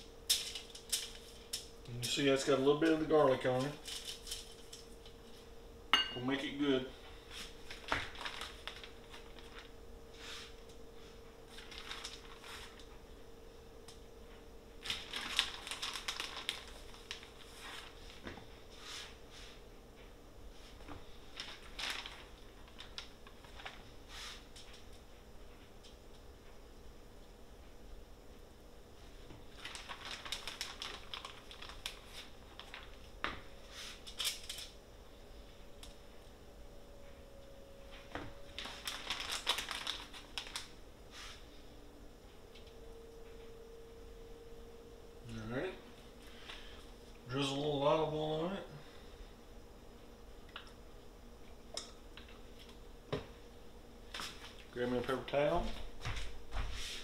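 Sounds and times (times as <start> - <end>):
aluminium foil crinkling: 0.3 - 5.1, 7.4 - 9.8, 11.5 - 12.9, 14.8 - 18.2, 21.2 - 25.0, 29.4 - 33.2, 33.9 - 34.8, 38.4 - 40.8.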